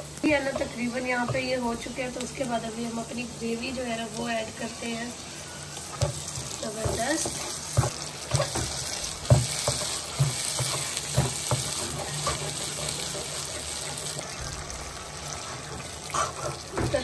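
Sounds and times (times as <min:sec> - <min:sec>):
gravy sizzling in a pan: 0:00.0 - 0:17.0
spatula scraping a pan: 0:05.9 - 0:14.2, 0:15.2 - 0:17.0.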